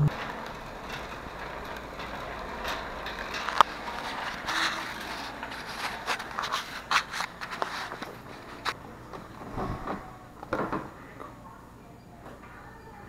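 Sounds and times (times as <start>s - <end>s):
cart basket rattling: 0.0s - 10.6s
shopping cart wheels rolling: 0.0s - 11.2s.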